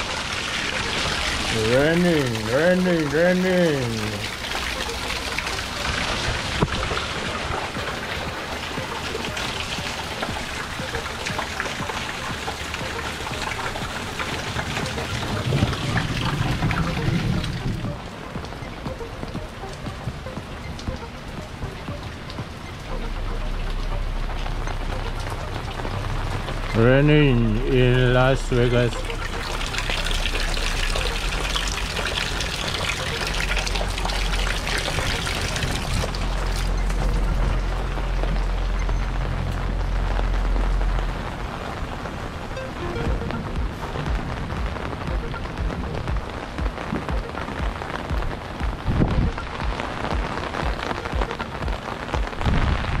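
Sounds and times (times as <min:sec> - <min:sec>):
rain drops falling: 0:00.0 - 0:53.0.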